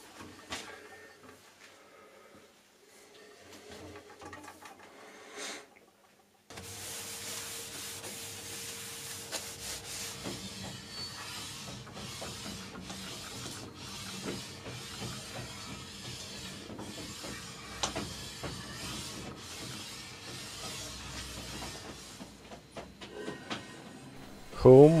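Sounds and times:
metal bar rubbing on metal plate: 6.6 - 22.3.

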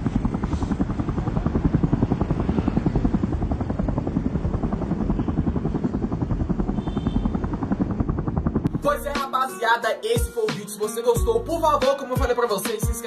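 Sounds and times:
low engine rumble: 0.0 - 9.2
helicopter rotor chopping: 0.0 - 9.4.

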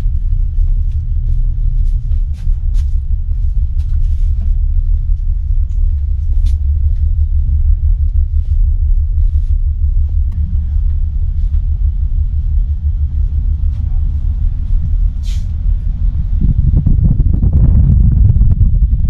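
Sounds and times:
ferry engines rumbling: 0.0 - 19.0.

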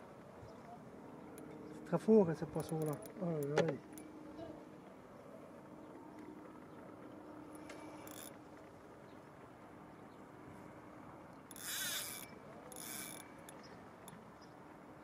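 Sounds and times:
fishing reel drag ratcheting: 2.5 - 4.0, 7.5 - 8.4, 11.5 - 14.2.

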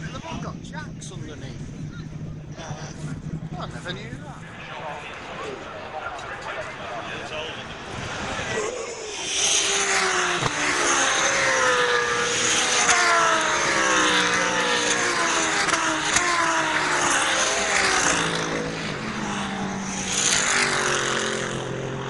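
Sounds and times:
race cars passing: 1.4 - 22.0.

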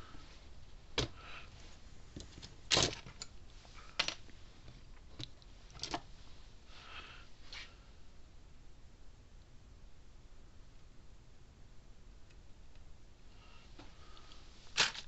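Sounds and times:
tools and metal parts clinking: 2.2 - 4.2.

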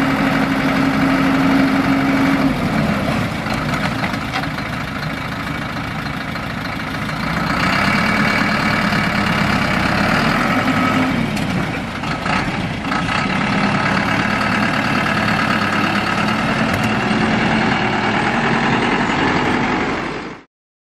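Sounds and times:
truck engine running: 0.0 - 20.5.

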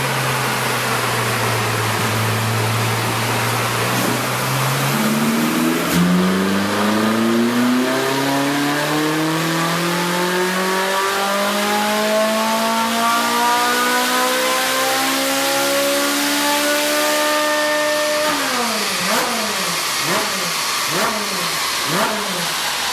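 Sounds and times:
car engine revving on dyno: 0.0 - 22.9.

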